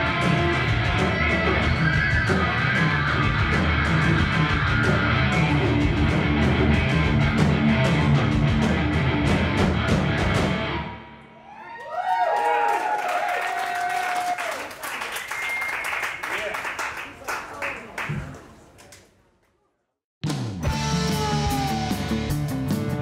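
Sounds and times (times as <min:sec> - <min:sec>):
live rock band playing: 0:00.0 - 0:11.0, 0:20.2 - 0:23.0.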